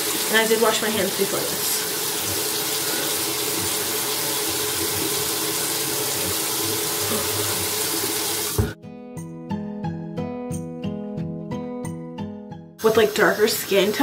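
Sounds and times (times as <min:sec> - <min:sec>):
sink tap running: 0:00.0 - 0:08.8, 0:12.8 - 0:14.0
tap shutting off with thump: 0:08.5 - 0:08.8
music with steady beat: 0:08.7 - 0:12.5.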